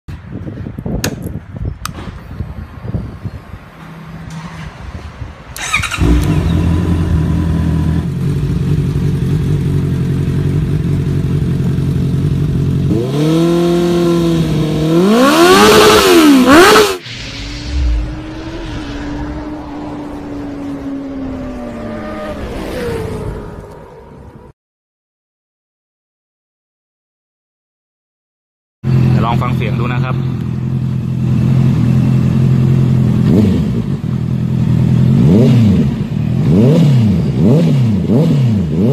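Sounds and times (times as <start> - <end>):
motorcycle engine idling and revving: 2.9 - 17.0, 28.8 - 38.9.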